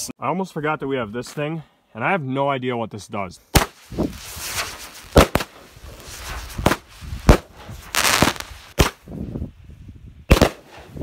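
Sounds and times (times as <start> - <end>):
fireworks bangs: 3.5 - 9.0, 10.3 - 10.9
hiss of sparks: 3.7 - 8.8.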